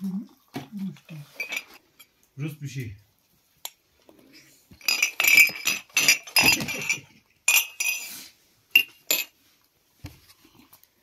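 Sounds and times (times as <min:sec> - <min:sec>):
drinking glasses clinking: 0:04.8 - 0:08.1.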